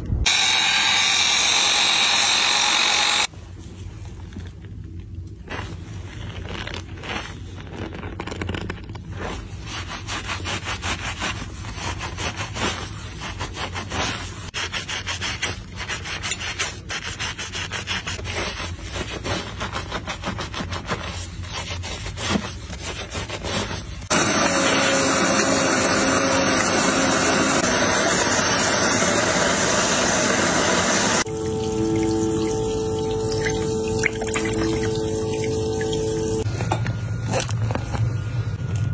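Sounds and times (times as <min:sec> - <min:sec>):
shower head spraying water: 0:28.2 - 0:36.5.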